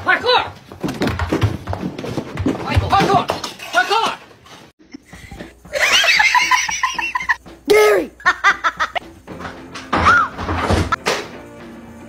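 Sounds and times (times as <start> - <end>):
knocks and thumps: 0.0 - 5.8, 9.0 - 11.4
high-pitched laughter: 5.7 - 7.4
person calling out: 7.7 - 8.2.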